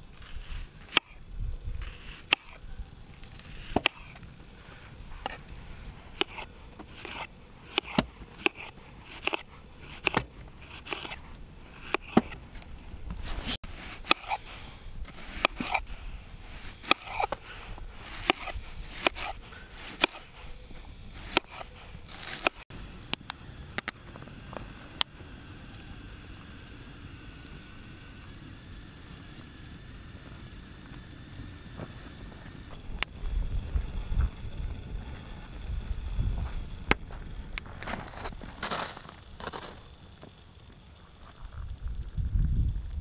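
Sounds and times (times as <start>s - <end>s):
knife slicing onions on board: 6.2s - 11.2s
kettle hissing: 13.2s - 42.1s.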